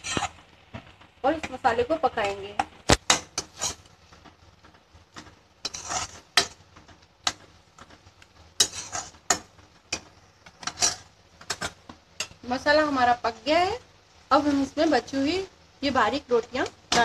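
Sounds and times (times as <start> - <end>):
metal spatula scraping a pan: 0.0 - 0.5, 2.9 - 4.4, 5.1 - 12.4.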